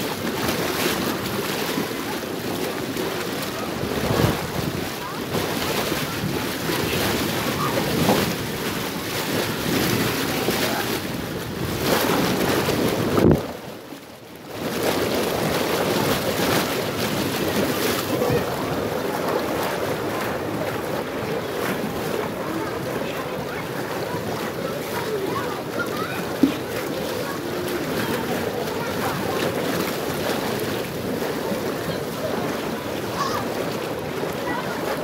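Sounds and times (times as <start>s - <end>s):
water splashing and churning: 0.0s - 35.0s
wind buffeting microphone: 2.1s - 13.7s.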